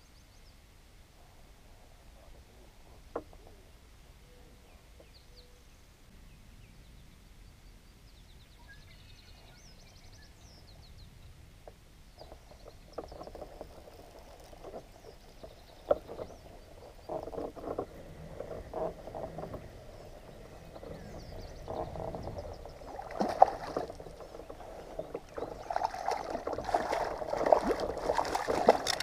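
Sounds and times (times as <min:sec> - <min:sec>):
birds chirping and trilling: 0:12.1 - 0:29.0.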